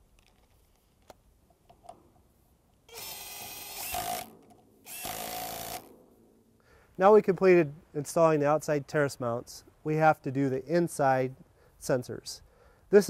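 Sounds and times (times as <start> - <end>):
cordless power driver: 2.9 - 4.3, 4.9 - 5.9.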